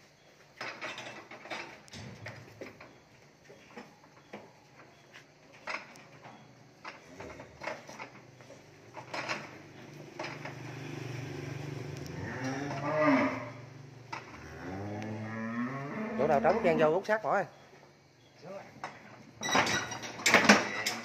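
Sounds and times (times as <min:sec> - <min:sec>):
cattle hooves on concrete: 0:00.0 - 0:15.2
cow mooing: 0:10.6 - 0:16.9.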